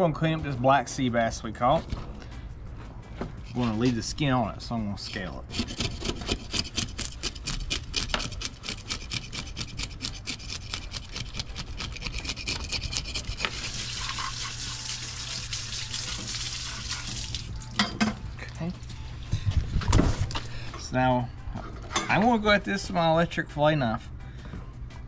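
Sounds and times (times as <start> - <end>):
knife scraping fish scales: 5.2 - 15.1, 16.3 - 17.5
running water: 13.5 - 17.7.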